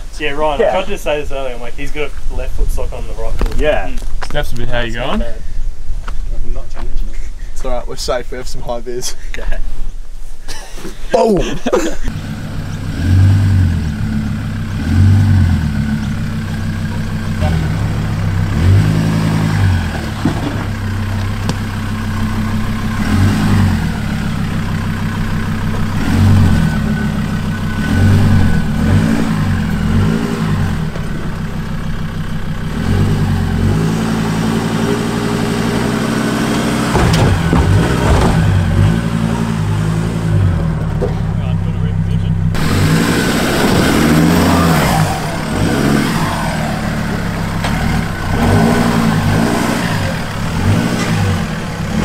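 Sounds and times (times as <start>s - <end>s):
truck engine revving: 12.1s - 52.0s.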